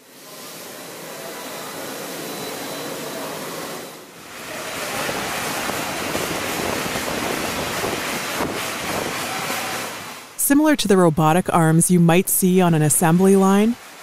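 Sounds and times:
high-pressure water spraying: 4.2 - 10.3.

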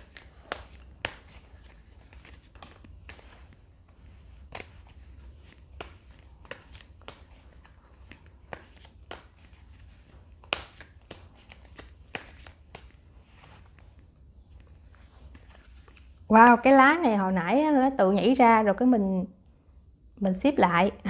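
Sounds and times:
cards being shuffled: 0.0 - 16.3.

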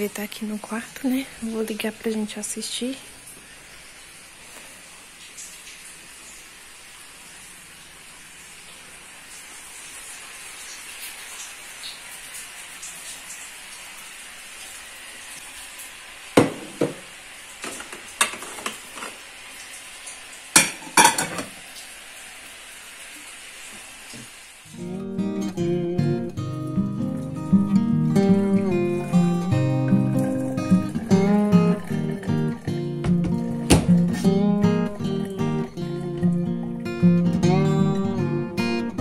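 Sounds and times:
light rain hissing: 0.0 - 39.0
pots and dishes clinking: 17.6 - 19.2, 20.5 - 21.6.

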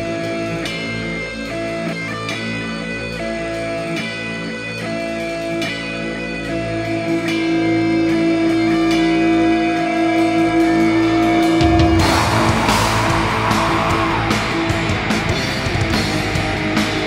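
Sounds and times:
black metal guitar chords: 0.0 - 17.0.

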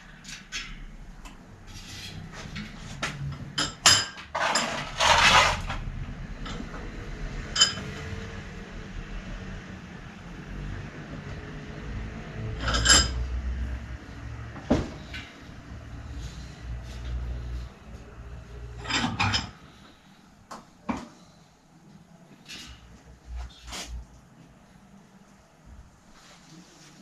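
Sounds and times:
metal tools clinking and rattling: 3.3 - 5.8, 7.5 - 8.0, 12.6 - 13.3, 18.8 - 19.8.

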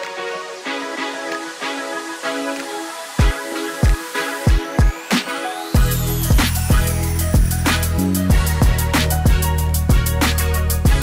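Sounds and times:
electronic music: 0.0 - 11.0
thudding kick drum: 5.8 - 7.5.

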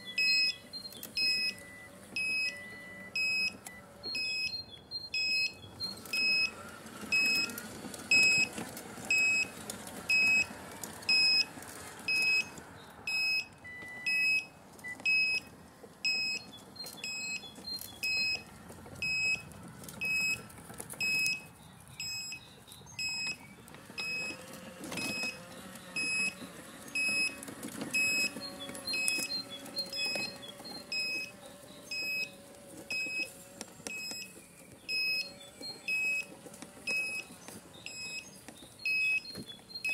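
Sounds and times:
faint mechanical hum and rattle: 0.0 - 39.9.

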